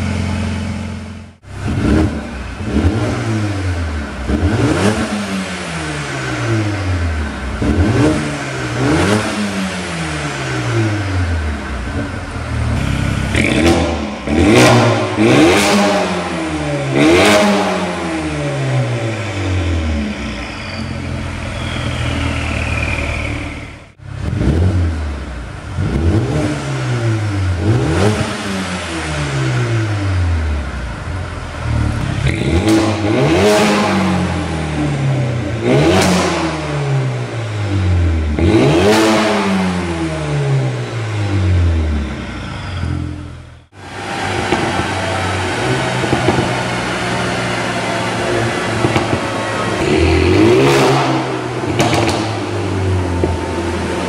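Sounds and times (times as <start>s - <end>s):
car engine revving: 0.0s - 54.0s
exhaust cracks: 43.7s - 54.0s.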